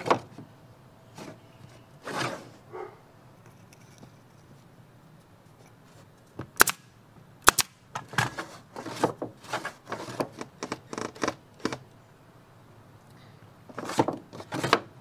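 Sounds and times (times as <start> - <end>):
wooden boards knocking and scraping: 8.0 - 11.8, 13.7 - 14.9.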